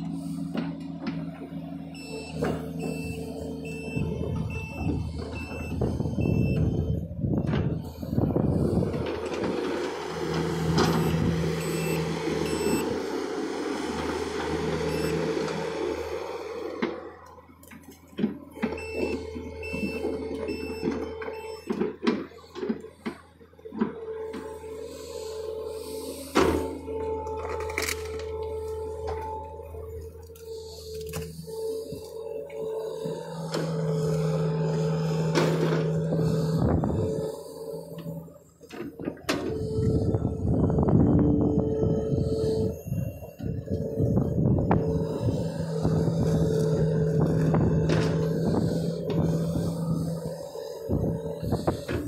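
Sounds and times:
excavator diesel engine running: 0.0s - 52.0s
hydraulic whine: 0.0s - 52.0s
reversing alarm beeping: 0.0s - 52.0s
short beeps: 2.0s - 7.0s, 10.8s - 12.9s, 18.8s - 21.8s.

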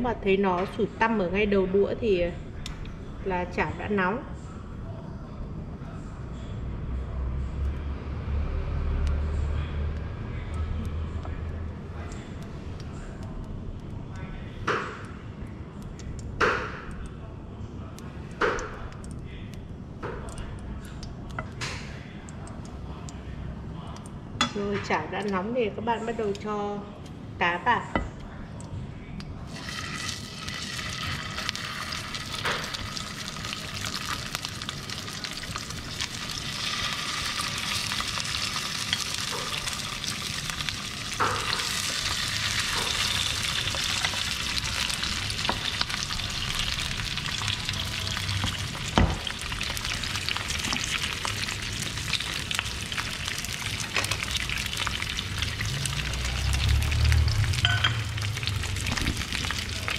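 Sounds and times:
fish sizzling in oil: 29.5s - 59.9s.

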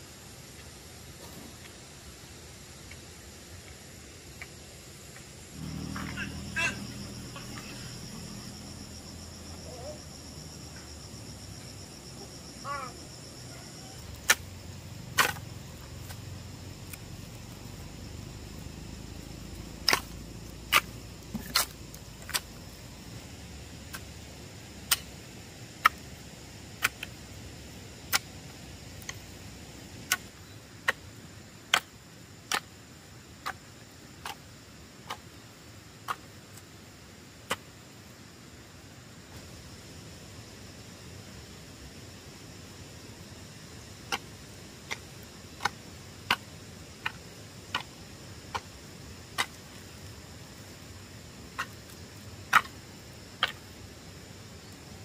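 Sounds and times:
low steady hiss: 0.0s - 55.0s.

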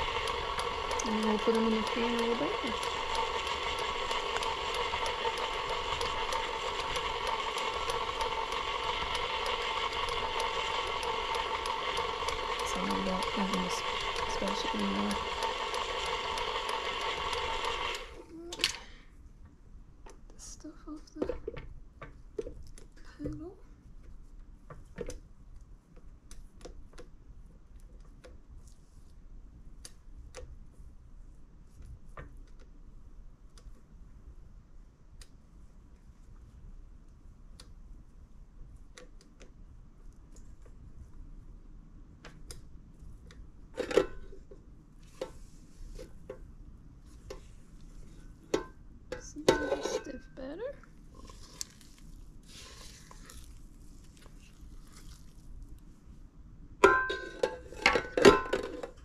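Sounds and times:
spatula tapping beater and bowl: 0.0s - 18.0s, 48.5s - 50.1s
stand mixer motor whining: 0.0s - 18.2s
spatula scraping dough in bowl: 49.5s - 50.1s.

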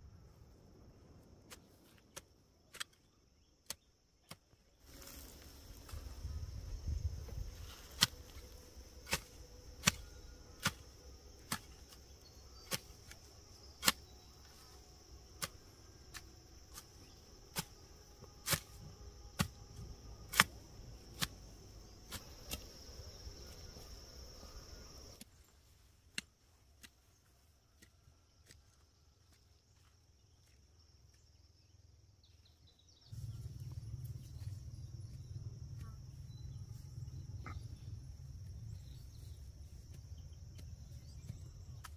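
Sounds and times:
insects droning: 0.0s - 41.9s
low rumble: 33.1s - 39.5s.

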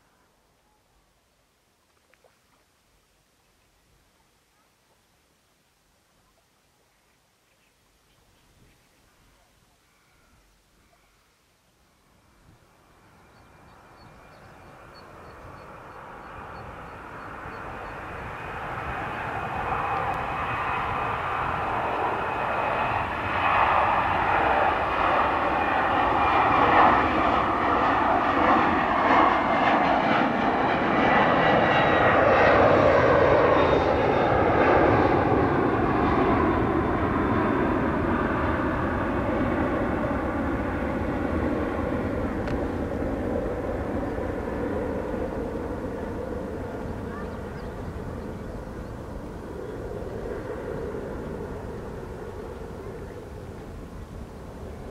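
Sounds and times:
jet airliner climbing: 13.8s - 53.6s.

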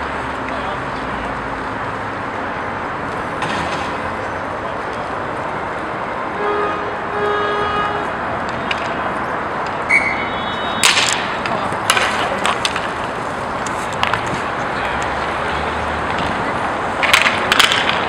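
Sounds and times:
hockey sticks and puck clacking: 8.0s - 18.0s
skate wheels rolling: 8.0s - 18.0s.

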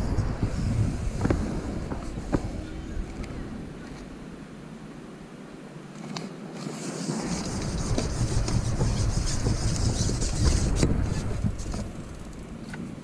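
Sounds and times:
fishing pole rubbing and scraping: 6.6s - 11.9s.

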